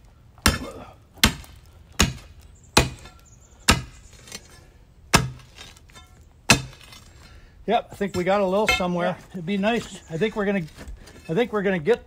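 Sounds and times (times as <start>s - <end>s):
steel bar striking concrete: 5.1s - 7.0s, 8.2s - 9.1s.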